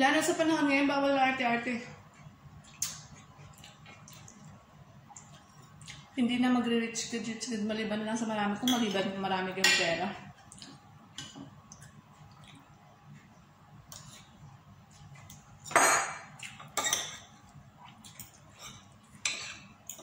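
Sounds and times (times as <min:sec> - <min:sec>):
cutlery clinking on ceramic plate: 0:15.7 - 0:17.3, 0:18.6 - 0:20.0.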